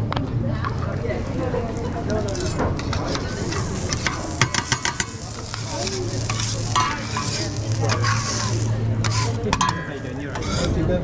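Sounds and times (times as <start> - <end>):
steady sizzling: 0.7 - 11.0
metal spatulas clacking on griddle: 2.2 - 10.7.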